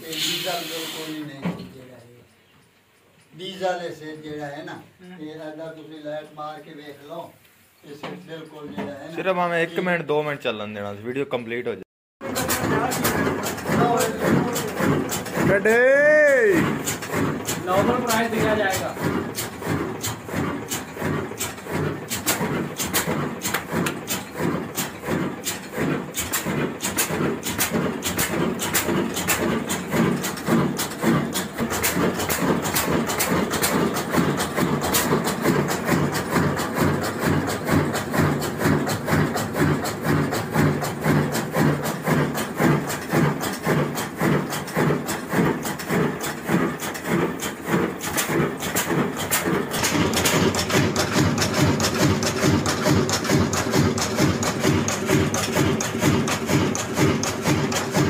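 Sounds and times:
stationary diesel engine running: 0:12.2 - 0:58.0.

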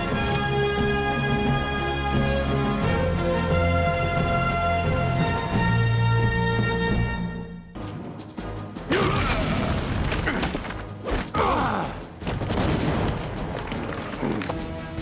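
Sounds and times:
dramatic music: 0:00.0 - 0:15.0.

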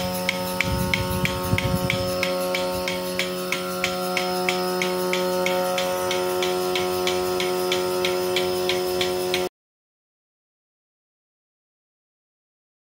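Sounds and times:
pulsator clicking: 0:00.0 - 0:09.5
vacuum pump humming: 0:00.0 - 0:09.5.

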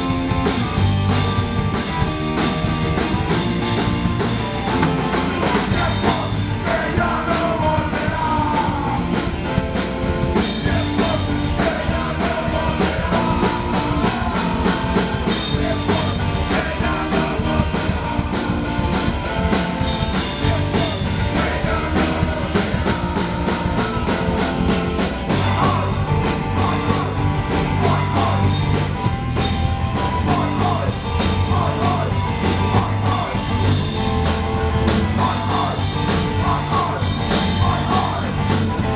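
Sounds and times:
bass guitar: 0:00.0 - 0:38.9
drum kit: 0:00.0 - 0:38.9
electric guitar: 0:00.0 - 0:38.9
person singing into microphone: 0:35.2 - 0:38.5.

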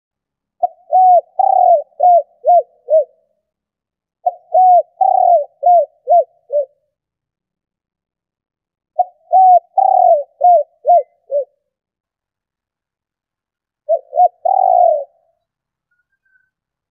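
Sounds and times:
dove cooing: 0:00.6 - 0:03.3, 0:04.2 - 0:06.8, 0:09.0 - 0:11.6, 0:13.8 - 0:15.4.

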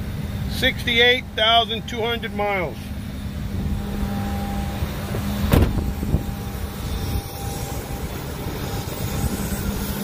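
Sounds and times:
truck engine idling: 0:00.0 - 0:10.0
truck door shutting: 0:05.0 - 0:06.4.

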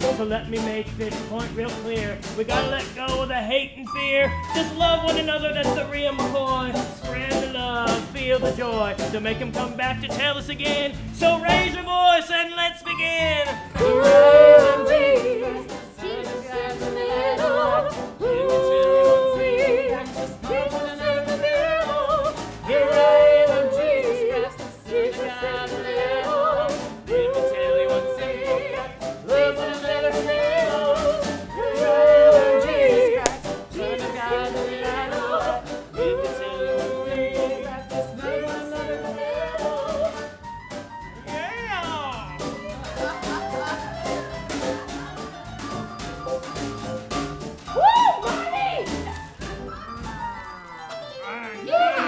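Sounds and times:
backing music with steady beat: 0:00.0 - 0:12.1, 0:12.9 - 0:50.4
wordless high singing melody: 0:00.0 - 0:40.4.

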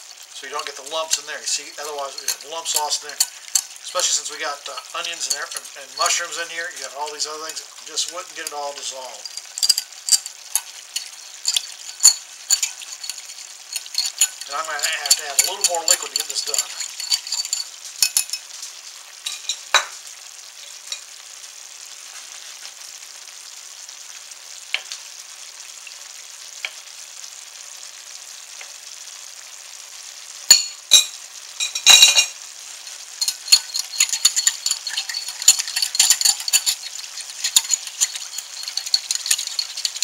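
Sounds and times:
sauce simmering hiss: 0:00.0 - 0:40.0
whisk clicking in glass bowl: 0:00.6 - 0:08.6, 0:09.2 - 0:18.4, 0:33.2 - 0:40.0
whisk knocking on bowl: 0:01.9 - 0:04.2, 0:09.2 - 0:18.4, 0:33.2 - 0:40.0.

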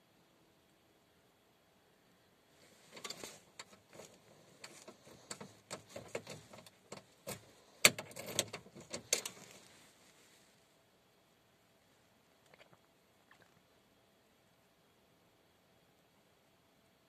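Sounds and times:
clicks and rattles at ignition: 0:02.9 - 0:09.6.

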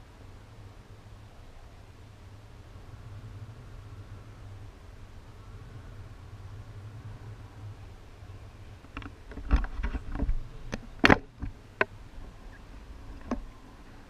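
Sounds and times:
wind rumble on microphone: 0:00.0 - 0:14.0
camera handling knocks and clicks: 0:08.9 - 0:11.9.

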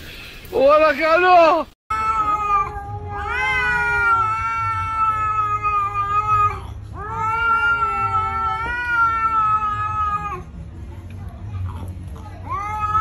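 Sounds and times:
cat yowling: 0:01.9 - 0:10.5, 0:12.4 - 0:13.0.

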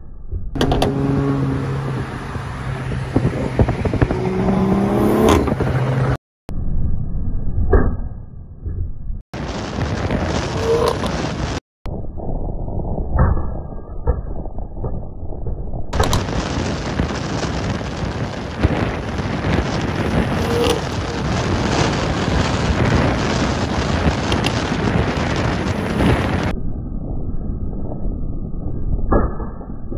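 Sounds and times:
wind and road rush: 0:00.5 - 0:06.9, 0:09.3 - 0:11.6, 0:14.8 - 0:29.2
car engine at speed: 0:00.6 - 0:06.2, 0:19.6 - 0:22.7
sharp exhaust bangs: 0:00.6 - 0:06.2.

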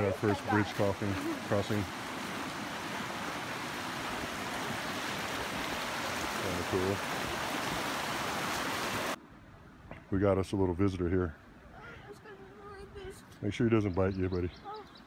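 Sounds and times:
person speaking: 0:00.0 - 0:01.9
creek rushing over rocks: 0:00.0 - 0:09.2.

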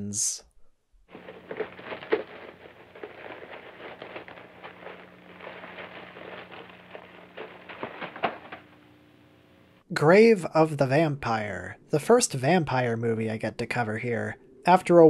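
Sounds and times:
film crackling and pops: 0:01.1 - 0:09.8
steady low hum: 0:01.1 - 0:09.8.

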